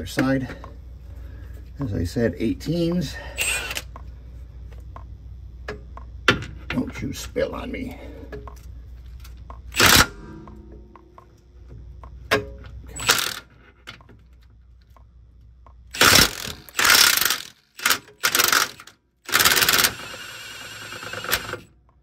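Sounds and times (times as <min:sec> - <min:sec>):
impact wrench hammering: 0:15.9 - 0:20.1.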